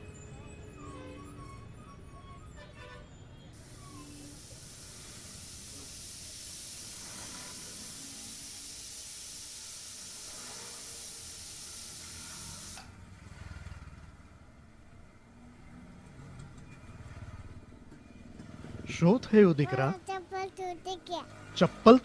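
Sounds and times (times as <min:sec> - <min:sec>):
high-pitched hiss: 0:03.6 - 0:12.8.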